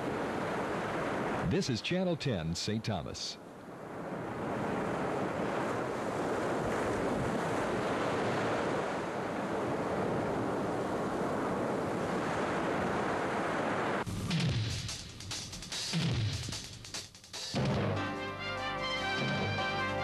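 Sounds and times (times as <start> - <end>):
ocean waves breaking on beach: 0.0 - 14.4.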